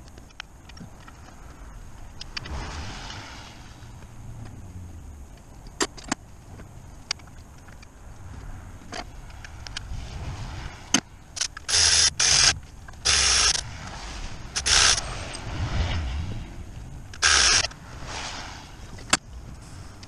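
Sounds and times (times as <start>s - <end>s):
loud hissing bursts: 11.5s - 16.0s, 17.2s - 18.9s.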